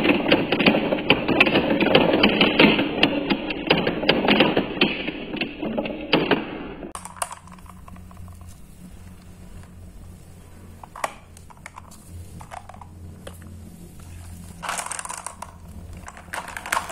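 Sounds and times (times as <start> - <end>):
marbles clattering: 0.0 - 16.9
steady low hum: 0.0 - 16.9
marbles clicking in toy truck: 6.9 - 8.5, 10.8 - 13.0, 14.6 - 16.9.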